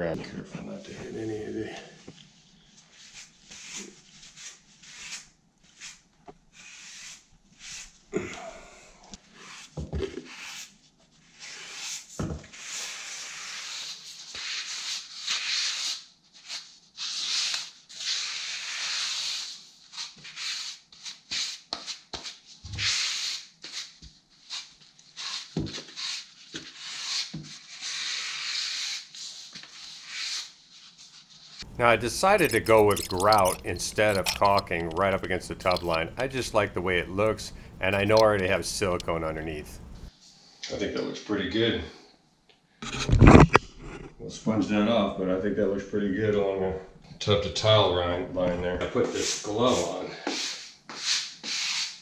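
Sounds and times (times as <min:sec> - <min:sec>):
grout float scraping tiles: 0:31.5 - 0:40.1.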